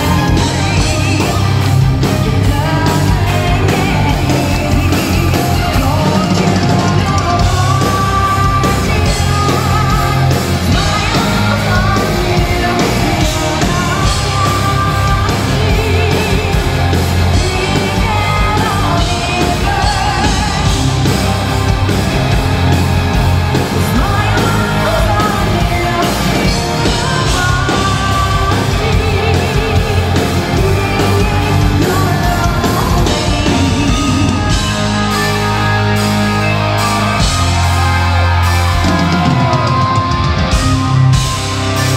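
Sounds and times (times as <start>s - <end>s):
woman singing: 0.0s - 20.8s, 23.7s - 35.3s
metal band playing live: 0.0s - 41.9s.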